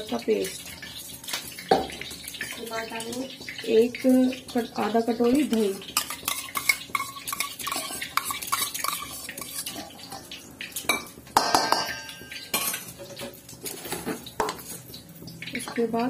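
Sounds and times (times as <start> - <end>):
metal spoon clinking on steel bowls: 5.4 - 10.2, 10.8 - 13.2.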